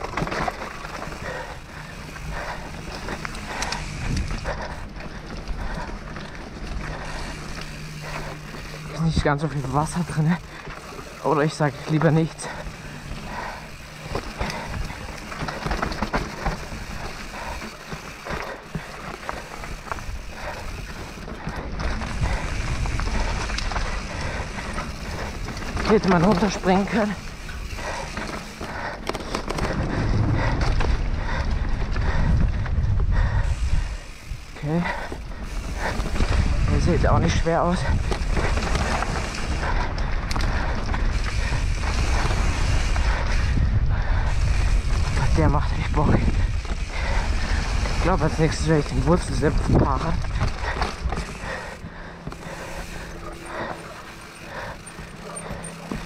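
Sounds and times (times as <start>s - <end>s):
bike frame rattling: 0.0s - 56.0s
bike tyres rumbling on dirt: 0.0s - 56.0s
wind buffeting microphone: 0.8s - 9.4s, 11.7s - 26.0s, 27.2s - 56.0s
low rumble: 27.4s - 37.1s.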